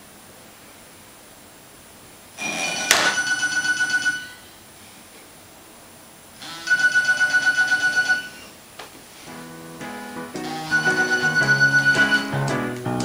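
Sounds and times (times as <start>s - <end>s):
telephone ringing: 2.4s - 4.4s, 6.4s - 8.5s, 10.4s - 12.5s.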